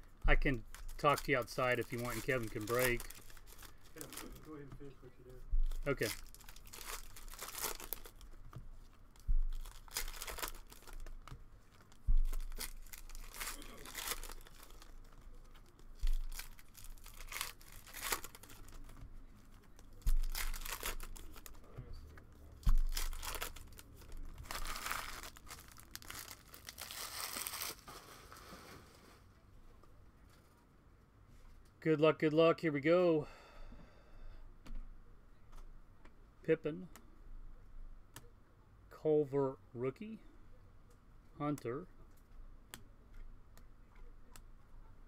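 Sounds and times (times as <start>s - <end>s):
paper and plastic wrapping tearing: 0.5s - 4.6s, 5.8s - 8.4s, 9.2s - 21.6s, 22.6s - 28.9s.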